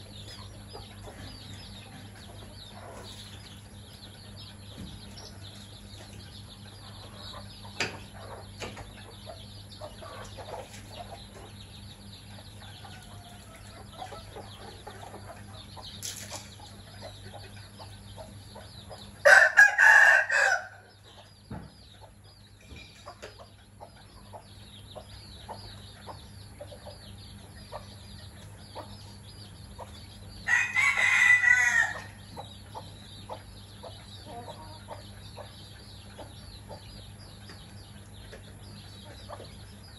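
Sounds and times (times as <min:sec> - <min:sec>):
chicks peeping: 0:00.0 - 0:39.9
hens clucking softly: 0:04.6 - 0:19.7
rooster crowing: 0:19.2 - 0:20.8, 0:30.5 - 0:32.2.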